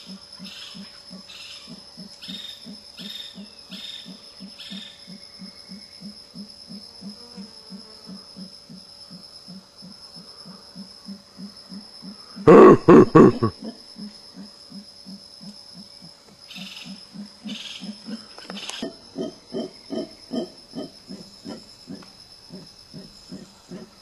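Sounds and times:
insect whine: 0.0s - 24.0s
howler monkeys calling: 9.5s - 24.0s.

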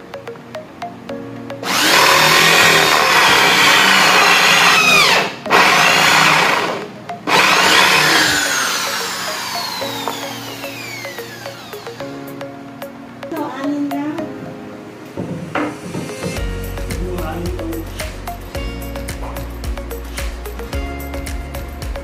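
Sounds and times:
light music with ticking beat: 0.0s - 22.0s
electric power tool running: 1.6s - 12.1s.

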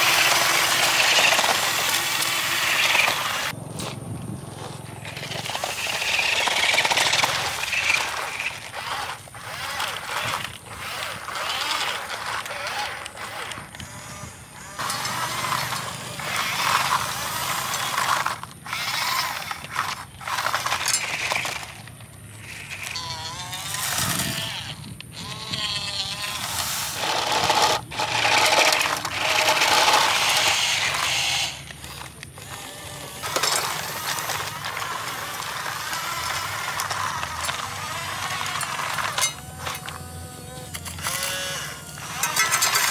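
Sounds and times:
stones rattling in plastic tipper: 0.0s - 3.5s, 26.5s - 32.6s, 33.2s - 40.0s, 41.8s - 42.9s.

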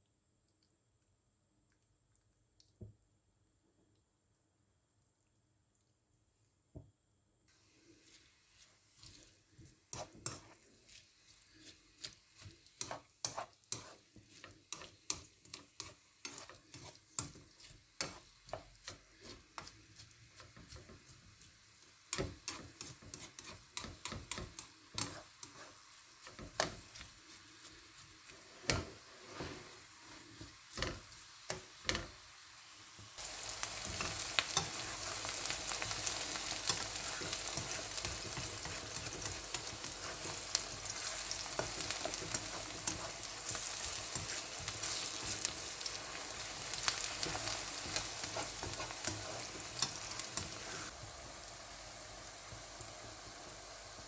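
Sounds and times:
onions sizzling in oil: 7.5s - 54.0s
spatula scraping a pan: 7.6s - 32.2s, 33.2s - 51.0s.

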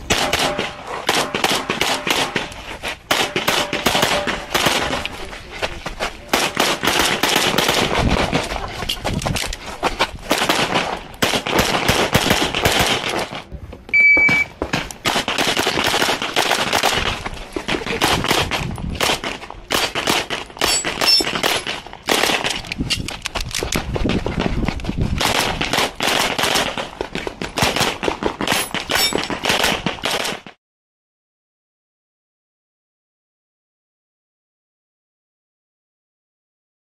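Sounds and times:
rapid pistol shots: 0.0s - 2.5s, 3.1s - 5.0s, 6.3s - 8.3s, 10.3s - 13.3s, 15.0s - 22.7s, 25.2s - 30.6s
short electronic beep: 13.9s - 14.6s.

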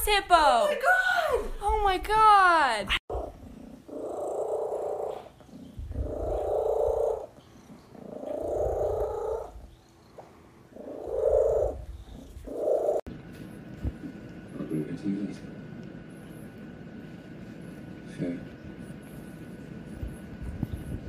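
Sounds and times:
cat purring loudly: 3.1s - 13.1s.

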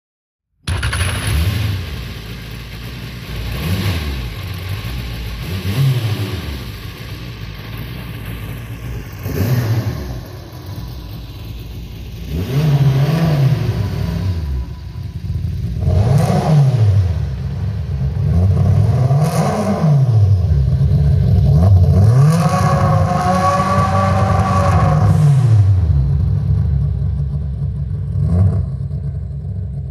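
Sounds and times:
car engine revving: 0.7s - 29.9s.

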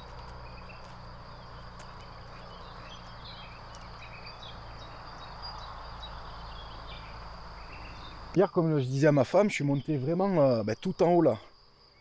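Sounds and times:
bird chirps: 0.0s - 9.0s
high-pitched insect sound: 0.0s - 12.0s.

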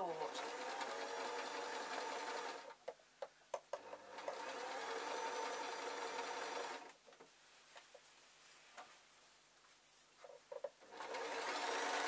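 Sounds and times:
sewing machine stitching: 0.0s - 2.8s, 3.8s - 6.9s, 10.8s - 12.0s
sewing machine clicks: 3.8s - 7.0s.

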